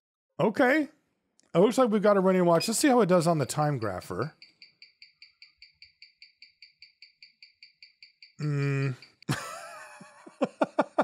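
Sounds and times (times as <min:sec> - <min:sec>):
man talking: 0:00.4 - 0:04.4, 0:08.4 - 0:09.0
watch ticking: 0:02.6 - 0:09.3.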